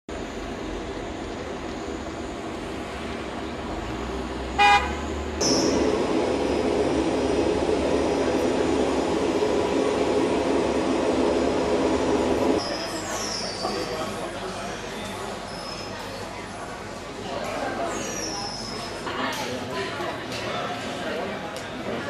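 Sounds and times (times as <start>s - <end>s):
horn toot: 4.6s - 5.0s.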